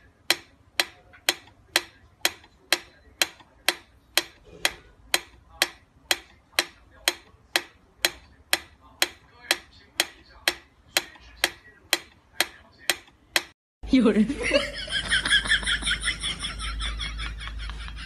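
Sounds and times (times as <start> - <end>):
metronome ticking: 0.0 - 13.6.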